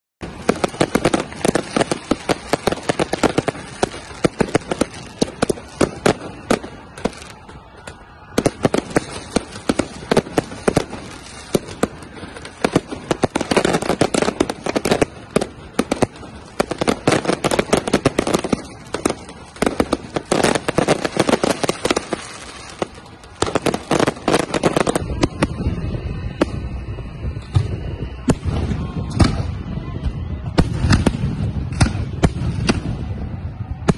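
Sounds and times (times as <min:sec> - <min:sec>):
fireworks bangs and crackles: 0:00.2 - 0:33.9.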